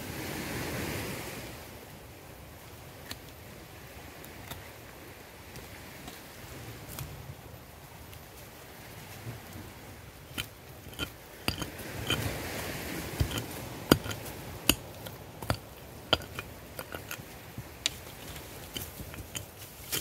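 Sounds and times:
scraping rasp: 10.3 - 20.0
hand tool chopping into soil: 13.1 - 17.2, 17.8 - 20.0.

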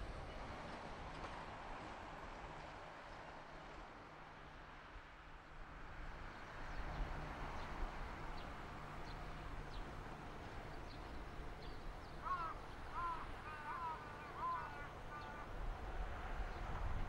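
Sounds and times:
distant railcar engine rumble: 5.4 - 17.0.

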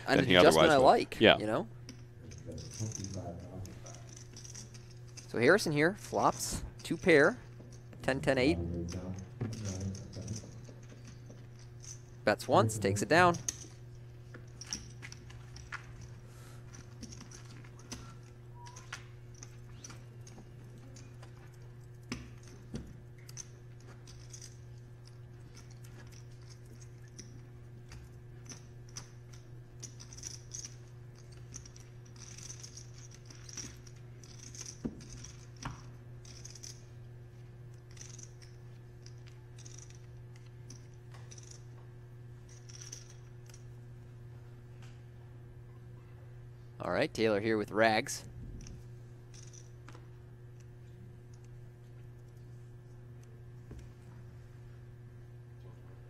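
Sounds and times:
steady low hum: 0.0 - 56.0
poker chips clicking and rattling: 9.5 - 12.0, 23.2 - 36.8, 37.8 - 41.6.

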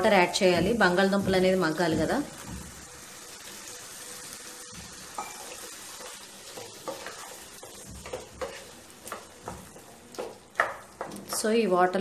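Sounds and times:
curry sizzling in a pan: 0.0 - 12.0
wooden spatula scraping a pan: 5.2 - 11.4.

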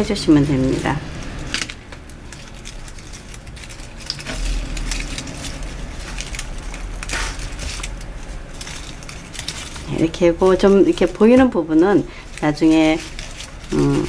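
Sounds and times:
low hum: 0.0 - 14.0
paper and twigs crackling: 0.0 - 14.0.

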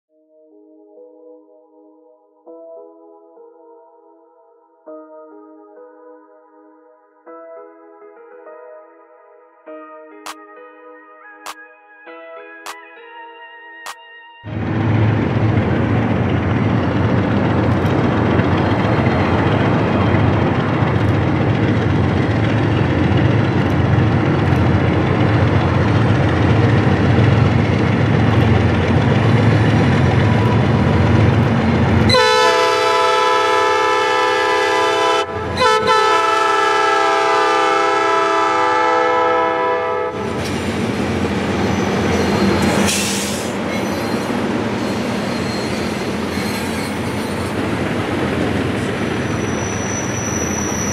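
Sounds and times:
diesel locomotive engines: 14.5 - 50.9
wheels clicking over rail joints: 15.3 - 32.2
locomotive horn blasts: 32.1 - 40.4
high wheel squeal: 40.4 - 47.7, 48.7 - 50.9.

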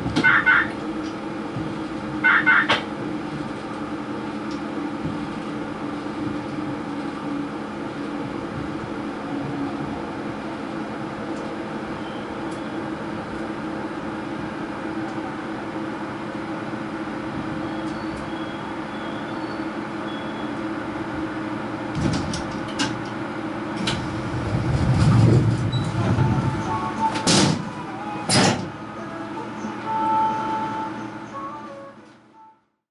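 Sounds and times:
subway train running hum: 0.0 - 32.8
brief rumbling: 23.8 - 27.8.

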